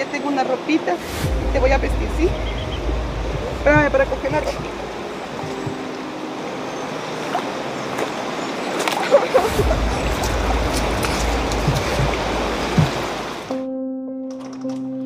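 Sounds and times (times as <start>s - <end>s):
river flowing: 0.0s - 13.6s
wind buffeting microphone: 1.0s - 13.5s
light knocks: 5.4s - 5.8s, 10.2s - 13.2s.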